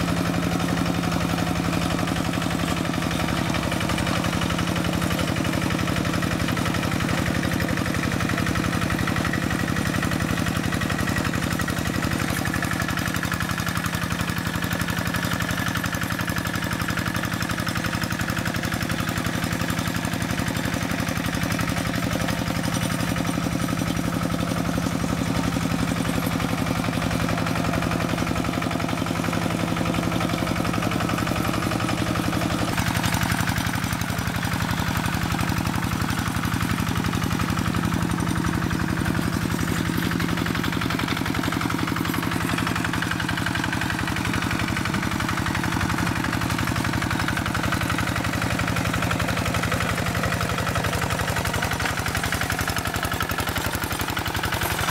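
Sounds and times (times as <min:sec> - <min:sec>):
diesel engine putt-putt: 0:00.0 - 0:54.9.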